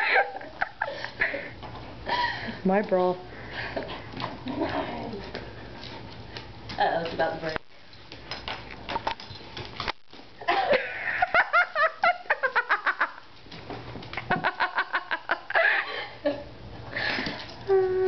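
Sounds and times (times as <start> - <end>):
person giggling: 0.0 - 2.4, 10.4 - 13.2, 14.2 - 16.5.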